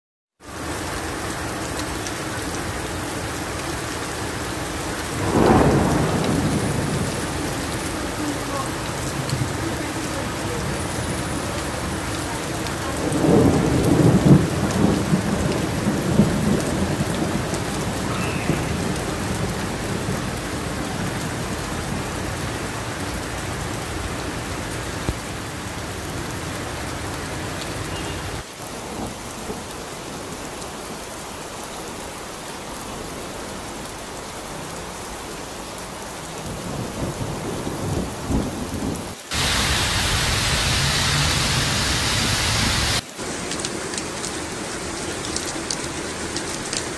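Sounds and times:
heavy rain pouring: 0.4 - 46.9
low rumble of thunder: 5.1 - 11.8, 12.7 - 22.3, 36.5 - 43.0.

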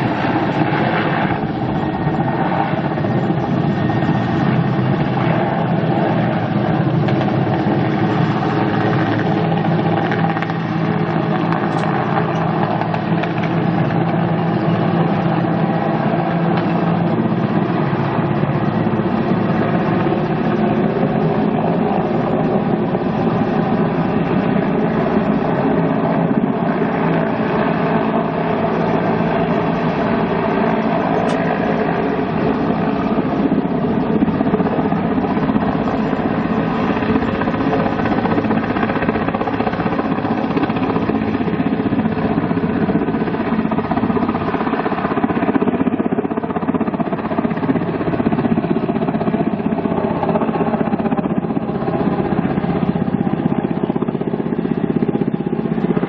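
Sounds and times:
helicopter flying overhead: 0.0 - 56.0.

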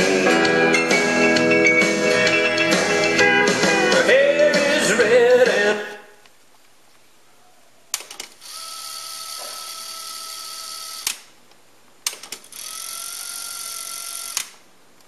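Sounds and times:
cassette deck tape winding whir: 12.5 - 14.6.

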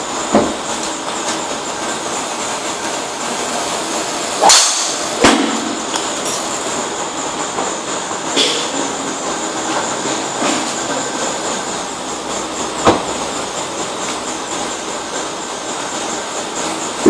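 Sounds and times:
second sharp crack: 4.4 - 5.6
driver striking golf ball: 4.4 - 5.7.

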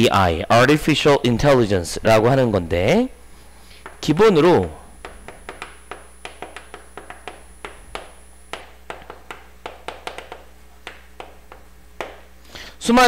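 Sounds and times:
chalk tapping on chalkboard: 3.8 - 4.2, 5.0 - 12.4.

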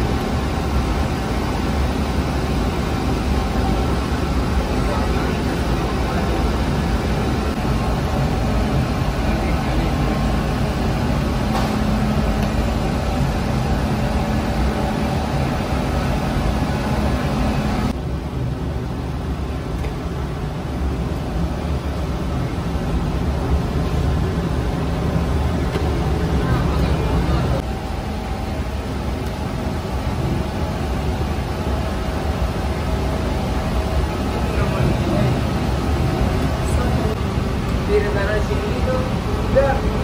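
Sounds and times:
bread oven machinery roar: 0.0 - 40.0.

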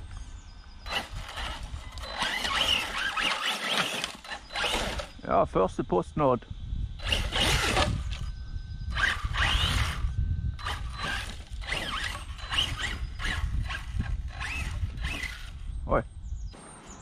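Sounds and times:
toy truck motor whining: 0.8 - 5.3, 7.0 - 15.7
steady low rumble: 4.2 - 17.0.

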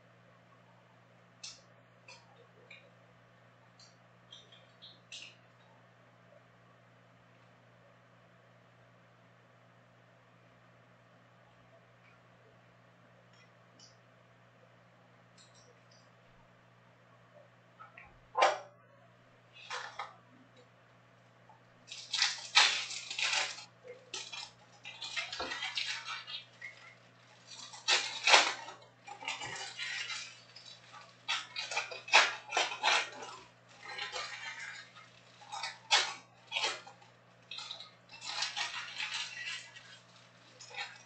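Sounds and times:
foil card packs crinkling: 21.8 - 41.0.

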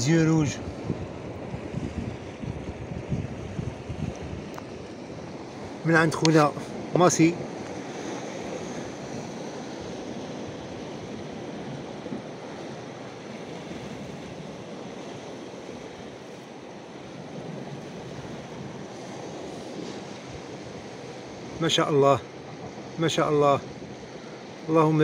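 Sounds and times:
wind on microphone: 0.0 - 16.6
sea surf: 0.0 - 25.0.

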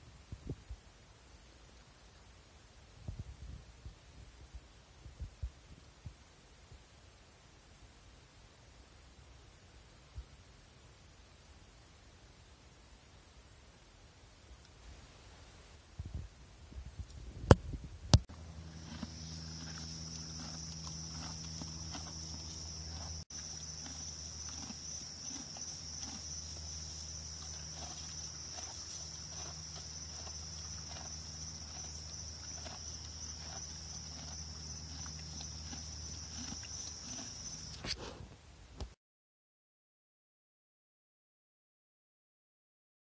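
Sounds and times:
low hum: 17.0 - 37.8
animals chewing feed: 18.3 - 38.2.

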